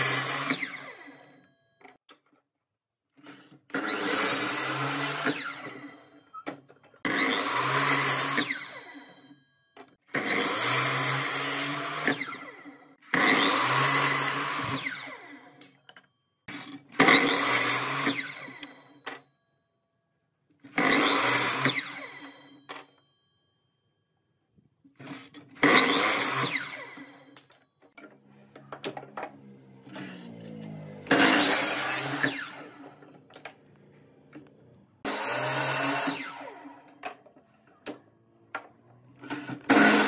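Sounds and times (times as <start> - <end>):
miter saw cutting wood: 0.0 - 1.4, 3.7 - 6.0, 7.0 - 9.0, 10.1 - 15.6, 16.5 - 18.8, 20.7 - 22.4, 25.1 - 27.4, 29.3 - 33.3, 34.4 - 37.0, 39.2 - 40.0.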